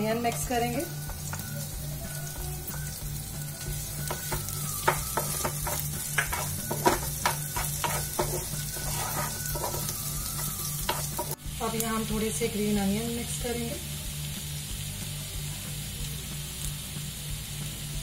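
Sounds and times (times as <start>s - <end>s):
onions sizzling in hot oil: 0.0s - 18.0s
spatula tapping and scraping pan: 4.0s - 11.4s.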